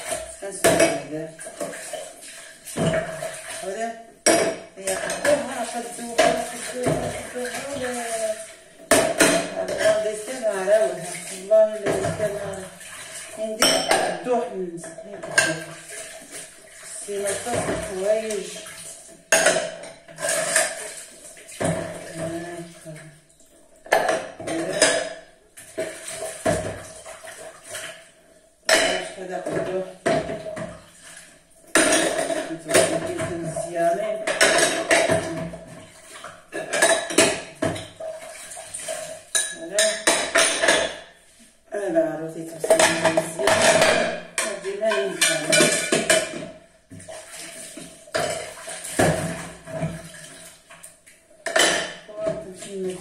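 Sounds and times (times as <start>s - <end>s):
person talking: 0.2s - 1.4s, 3.6s - 4.1s, 4.8s - 8.5s, 9.3s - 12.8s, 13.4s - 15.7s, 16.9s - 18.7s, 22.0s - 23.2s, 24.4s - 25.1s, 28.9s - 30.0s, 32.2s - 34.4s, 35.0s - 35.6s, 39.5s - 40.3s, 41.7s - 46.1s, 52.1s - 53.0s
dishes and cutlery clinking: 13.6s - 14.2s, 19.3s - 20.9s, 28.7s - 30.7s, 31.7s - 35.5s, 36.5s - 41.0s, 42.6s - 47.1s, 51.4s - 52.7s.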